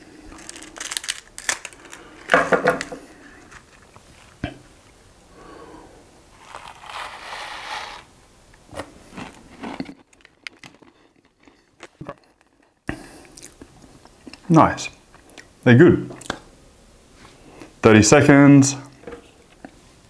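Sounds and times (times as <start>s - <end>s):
crunching seeds: 0.0s - 4.5s, 6.3s - 8.1s
plastic sachet crinkling and tearing: 0.3s - 2.9s.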